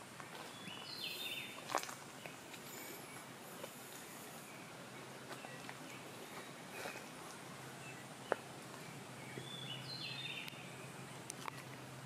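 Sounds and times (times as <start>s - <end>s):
steady background hiss: 0.0s - 12.0s
footsteps on forest floor: 0.2s - 4.5s, 5.2s - 7.4s.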